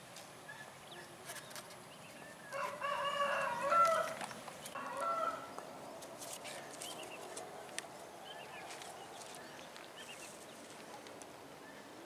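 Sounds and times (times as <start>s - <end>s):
rooster crowing: 2.5s - 4.2s, 4.8s - 5.6s.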